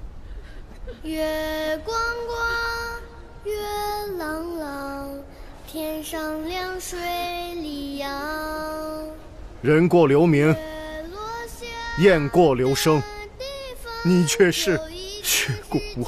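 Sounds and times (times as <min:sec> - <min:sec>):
high voice singing held notes: 0:10.4 - 0:16.0.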